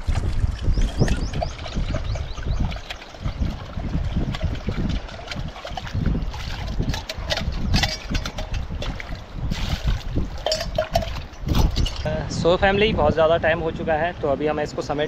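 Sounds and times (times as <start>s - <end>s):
running water: 0.0s - 12.8s
wind buffeting microphone: 0.0s - 15.0s
dishes clinking: 6.9s - 8.7s, 10.4s - 12.2s.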